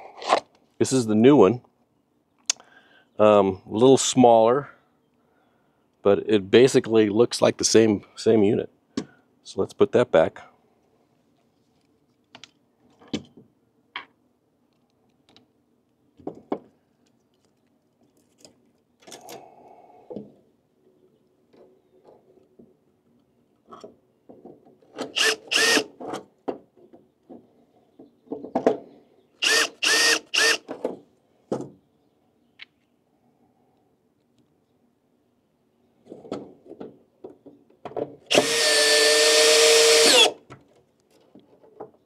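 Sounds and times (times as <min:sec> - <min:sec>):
cordless drill driving screws: 0:25.0 - 0:25.9, 0:29.4 - 0:30.7, 0:38.3 - 0:40.4.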